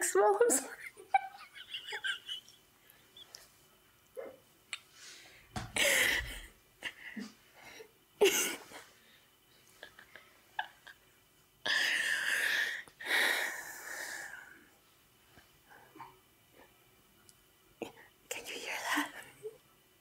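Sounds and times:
woman laughing breathlessly: 5.8s - 7.4s.

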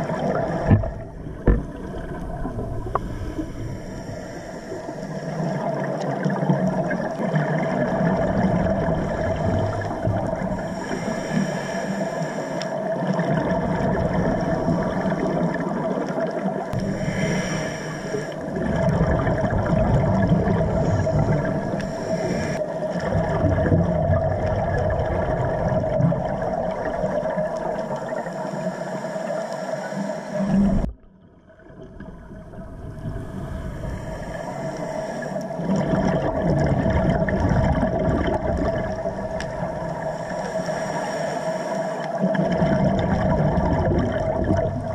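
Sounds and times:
regulator bubbles rushing: 0.0s - 3.8s, 5.4s - 10.6s, 13.0s - 17.0s, 18.4s - 22.0s, 23.0s - 28.2s, 35.5s - 40.2s, 42.2s - 44.9s
underwater droning hum: 0.0s - 44.9s.

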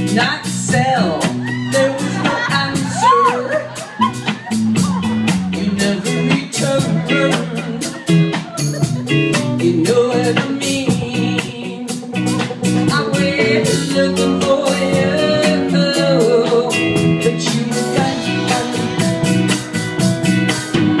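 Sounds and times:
drum kit with cymbals: 0.0s - 21.0s
electric guitars: 0.0s - 21.0s
woman singing: 0.1s - 3.7s, 5.5s - 8.2s, 9.5s - 19.1s.

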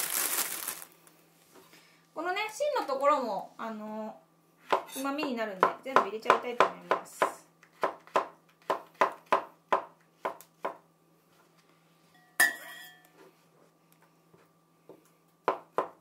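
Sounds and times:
knife chopping vegetables: 4.6s - 10.8s, 15.4s - 16.0s
knife clinking against bowl: 12.3s - 13.1s.

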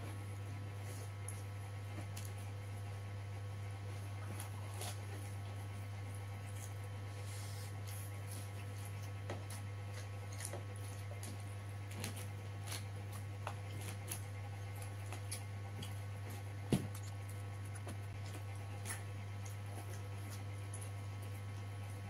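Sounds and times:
steady low hum: 0.0s - 22.0s
person chewing: 7.7s - 21.7s.

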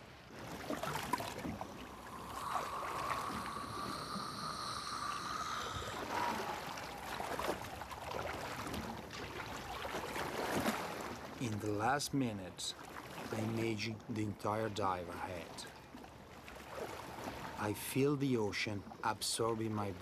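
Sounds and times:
water splashing around swimmer: 0.0s - 12.0s
steady high tone: 1.6s - 7.3s.

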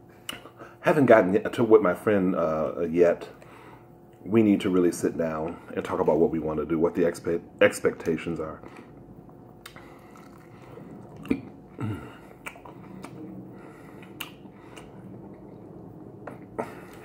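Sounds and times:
chewing crispy chicken: 9.6s - 13.2s.

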